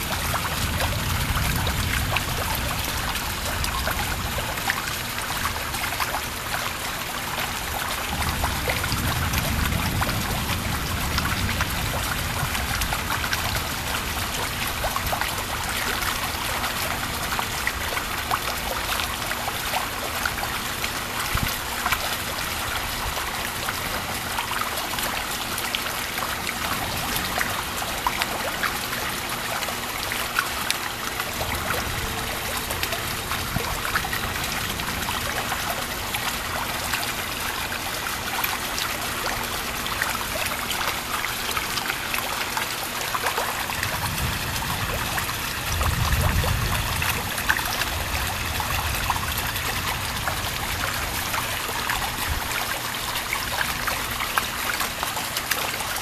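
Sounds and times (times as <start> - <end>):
low thunder rumble: 0.0 - 4.6, 7.6 - 17.9, 31.2 - 36.8, 43.7 - 51.5
rain falling: 0.0 - 56.0
water trickling: 0.0 - 56.0.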